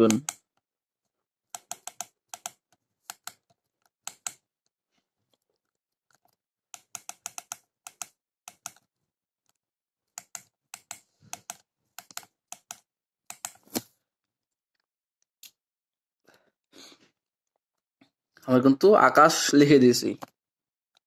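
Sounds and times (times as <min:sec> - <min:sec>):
keypad buttons clicking: 0:01.6 - 0:03.4, 0:04.1 - 0:04.4, 0:06.8 - 0:08.8, 0:10.2 - 0:13.6.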